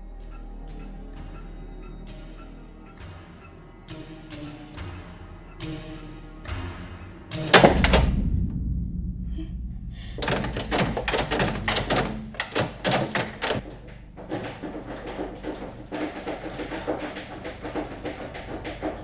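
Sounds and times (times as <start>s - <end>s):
knocks and bangs: 4.3s - 19.0s
heavy thud with rumble: 7.5s - 11.8s.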